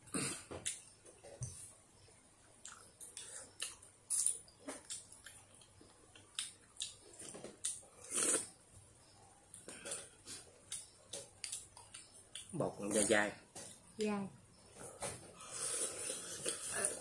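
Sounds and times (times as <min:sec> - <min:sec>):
slurping noodle soup: 0:08.0 - 0:08.5, 0:15.4 - 0:17.0.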